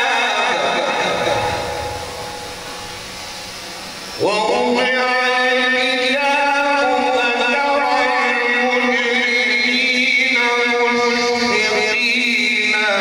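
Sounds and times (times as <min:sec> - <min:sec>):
man reciting melodically: 0:04.2 - 0:13.0.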